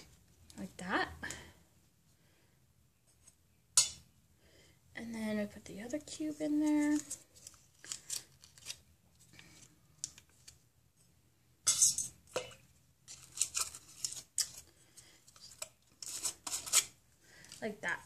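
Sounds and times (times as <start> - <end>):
paper wrapper crinkling: 6.6 - 10.6, 13.1 - 17.7.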